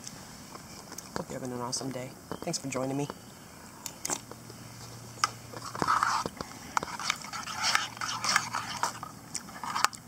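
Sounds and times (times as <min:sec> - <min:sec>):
chewing and slurping: 0:05.2 - 0:10.0.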